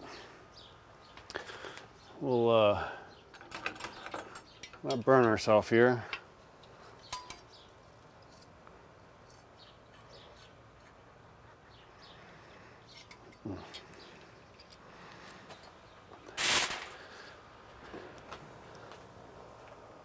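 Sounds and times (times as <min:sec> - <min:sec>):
birds chirping: 0:00.0 - 0:08.4, 0:09.2 - 0:10.9, 0:11.5 - 0:16.3
light metallic clink: 0:07.1 - 0:07.6.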